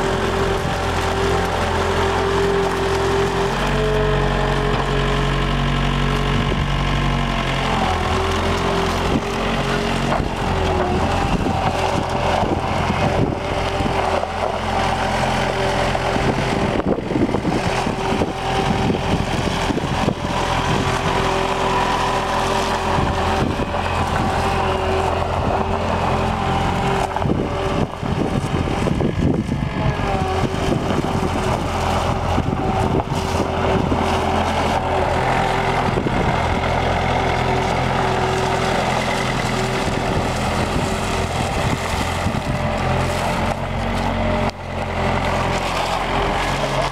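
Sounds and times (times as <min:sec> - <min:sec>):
skid steer engine running: 0:00.0 - 0:46.9.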